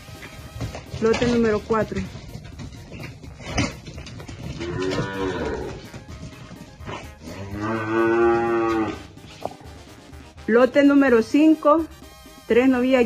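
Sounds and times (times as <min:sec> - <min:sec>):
calves mooing: 0:02.8 - 0:09.4.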